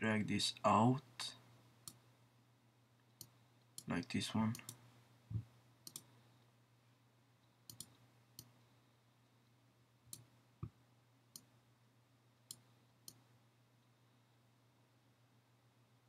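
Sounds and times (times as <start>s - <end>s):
faint steady hum: 0.0s - 16.0s
computer mouse clicks: 4.5s - 4.8s, 5.8s - 6.1s, 7.7s - 8.6s.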